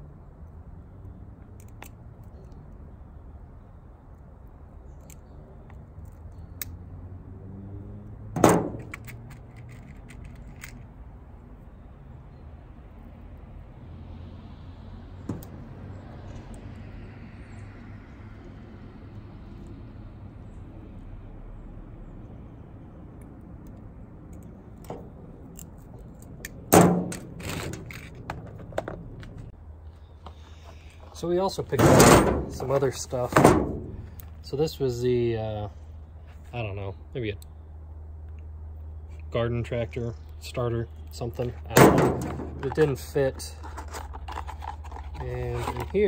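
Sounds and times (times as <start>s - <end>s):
loose terminals rattling: 8.4s - 10.9s.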